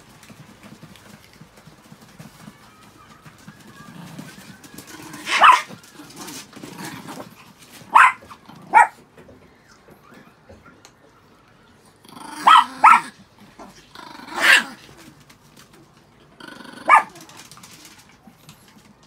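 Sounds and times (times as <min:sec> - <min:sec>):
small dogs barking: 0:03.7 - 0:09.1, 0:12.1 - 0:15.0, 0:16.6 - 0:17.5.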